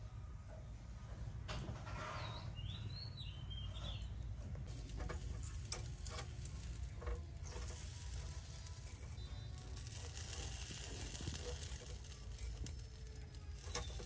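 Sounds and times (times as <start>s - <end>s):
bird chirping: 2.2s - 4.2s
faint steady hiss: 4.6s - 14.0s
metal tongs clicking on grill: 4.7s - 14.0s.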